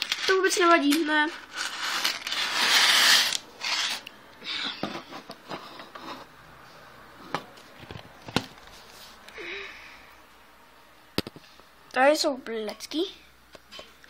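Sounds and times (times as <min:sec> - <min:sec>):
plastic model rustling: 0:00.0 - 0:04.0.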